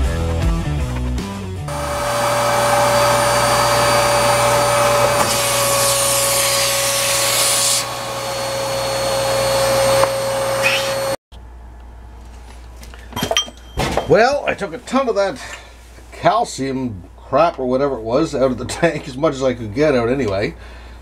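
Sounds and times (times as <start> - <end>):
vacuum cleaner running: 1.7 - 11.2.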